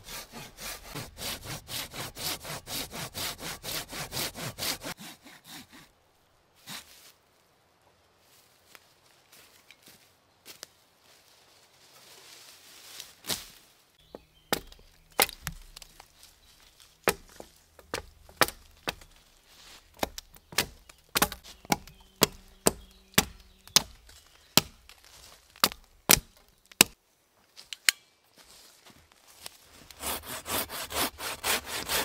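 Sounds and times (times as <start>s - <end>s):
axe chopping wood: 14.1s - 16.1s, 17.0s - 19.2s, 19.9s - 25.0s, 25.6s - 27.0s.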